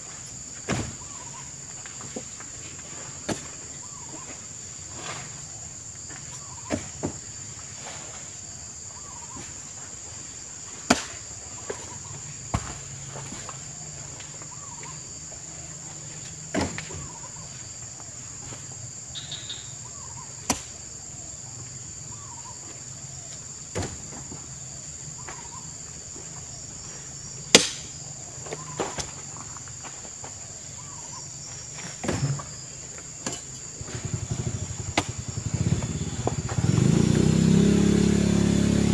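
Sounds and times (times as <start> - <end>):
fruit bunches thumping on truck: 0.6 - 4.3, 6.1 - 7.6, 10.7 - 13.8, 16.2 - 17.4, 20.4 - 20.9, 23.6 - 25.6, 27.4 - 29.5, 31.7 - 37.0
high-pitched insect drone: 18.9 - 20.4, 33.3 - 38.9.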